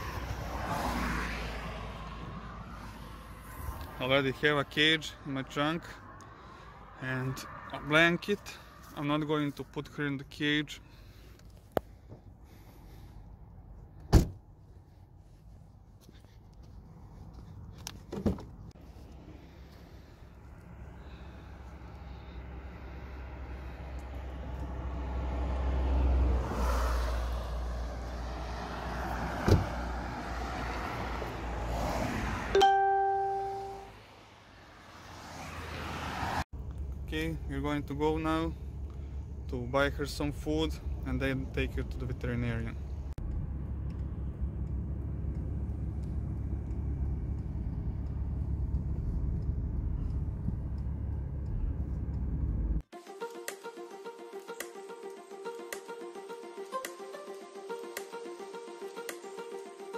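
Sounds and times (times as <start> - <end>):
road traffic passing: 0.0 - 53.0
car door shutting: 14.0 - 14.4, 29.2 - 29.8.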